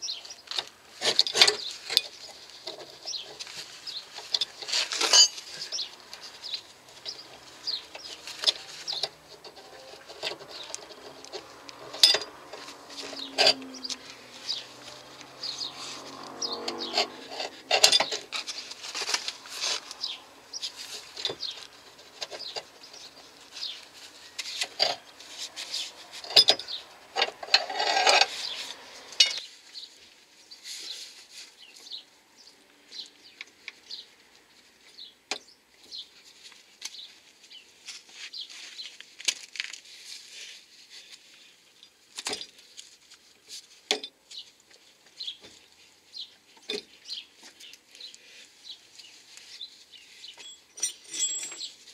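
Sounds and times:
metal parts clinking and knocking: 0:04.2 - 0:06.2, 0:07.0 - 0:13.7, 0:17.0 - 0:19.1, 0:26.2 - 0:28.3, 0:50.4 - 0:51.8.

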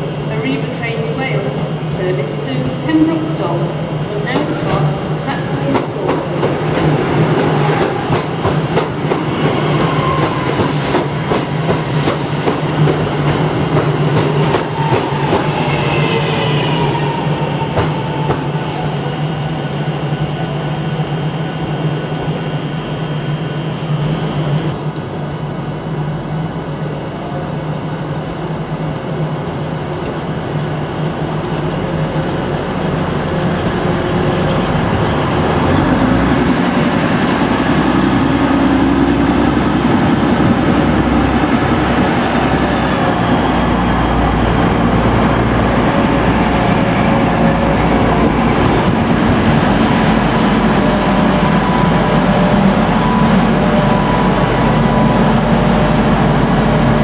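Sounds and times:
train running past: 0:00.0 - 0:57.0
train traction hum: 0:00.0 - 0:57.0.

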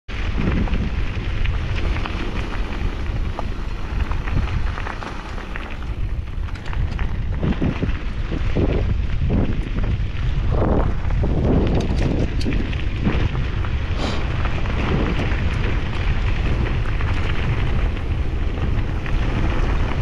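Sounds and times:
bike tyres crunching on gravel: 0:00.1 - 0:20.0
wind buffeting microphone: 0:00.1 - 0:20.0
clicks of stones: 0:11.4 - 0:13.3.

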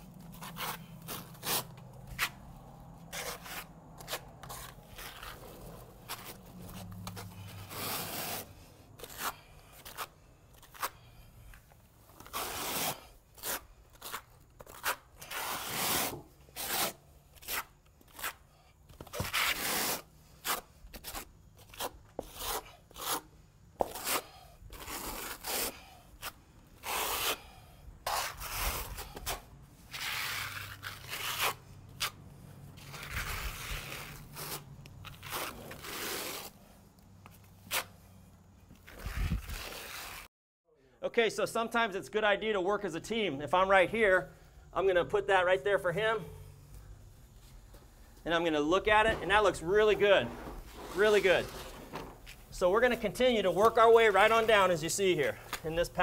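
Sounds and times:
trowel scraping wet concrete: 0:03.1 - 0:11.0, 0:12.2 - 0:18.4, 0:19.1 - 0:32.2, 0:32.8 - 0:36.6, 0:48.8 - 0:56.0
push broom dragged over surface: 0:48.8 - 0:52.4.

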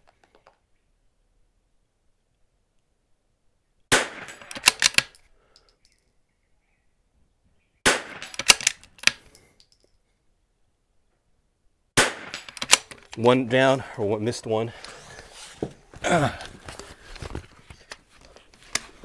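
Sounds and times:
rifle shots: 0:03.9 - 0:05.1, 0:07.8 - 0:08.8, 0:12.0 - 0:12.9
sharp clicks: 0:04.4 - 0:05.2, 0:08.2 - 0:09.3, 0:12.4 - 0:13.2.

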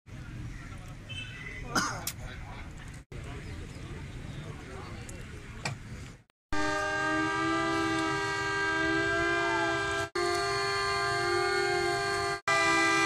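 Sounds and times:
siren held chord: 0:06.6 - 0:13.0.

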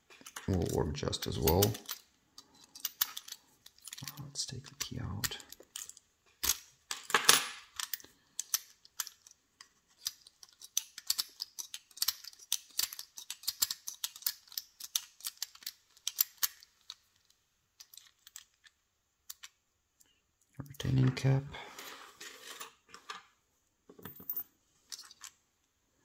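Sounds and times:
padlock clicking and rattling: 0:00.2 - 0:17.1, 0:17.8 - 0:19.6.

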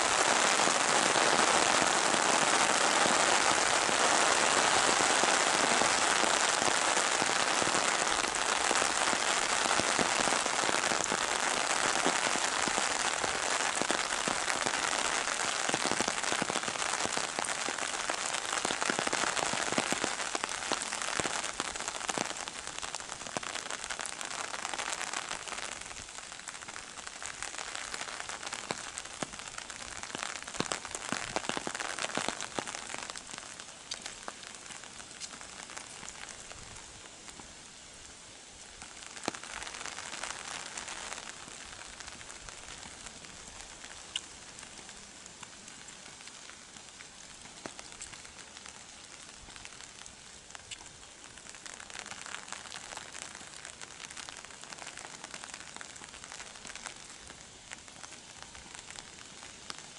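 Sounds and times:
rain pattering on umbrella: 0:00.0 - 0:59.9.

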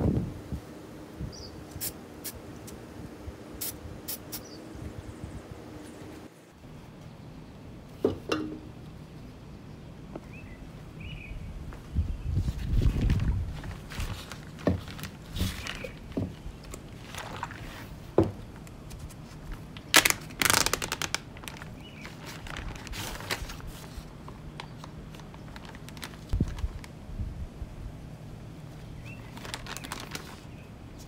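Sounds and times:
objects being handled: 0:12.4 - 0:26.6.

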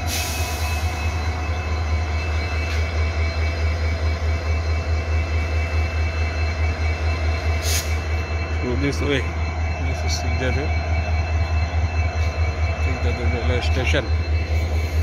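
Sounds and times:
locomotive idling: 0:00.0 - 0:15.0.

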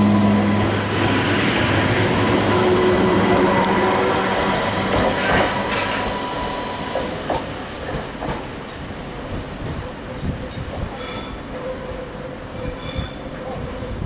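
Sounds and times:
steady train whine: 0:00.0 - 0:09.8
train running noise: 0:00.0 - 0:14.0.

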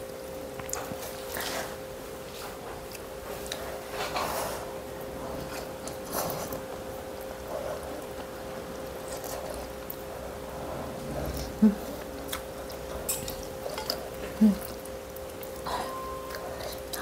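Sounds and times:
steady hum: 0:00.0 - 0:17.0
person humming: 0:14.3 - 0:14.8.

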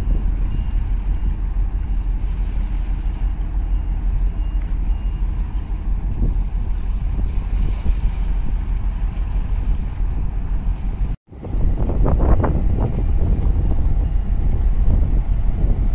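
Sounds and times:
distant reversing alarm beeps: 0:00.0 - 0:07.0, 0:13.7 - 0:15.5
ship drone: 0:00.0 - 0:15.9
wind buffeting microphone: 0:00.0 - 0:15.9.

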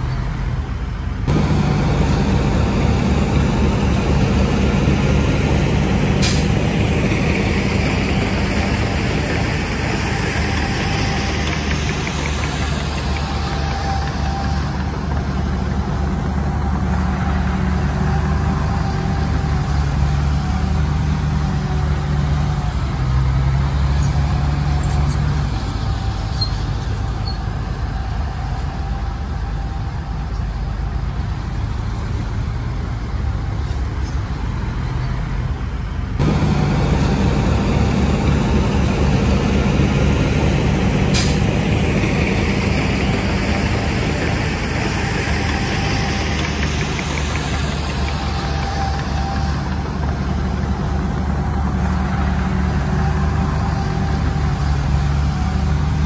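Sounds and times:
diesel machinery engine drone: 0:00.0 - 0:56.0.

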